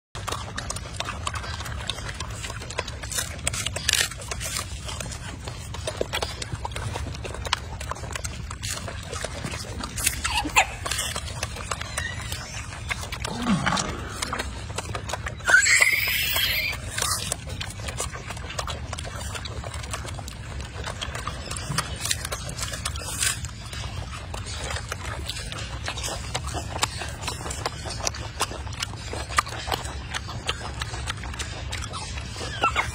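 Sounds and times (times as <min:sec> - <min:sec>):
monkey eating with clicks and smacks: 0:00.2 - 0:32.9.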